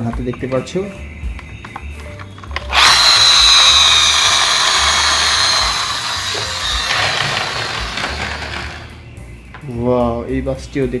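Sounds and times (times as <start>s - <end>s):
toy motor gears whirring: 2.5s - 8.9s.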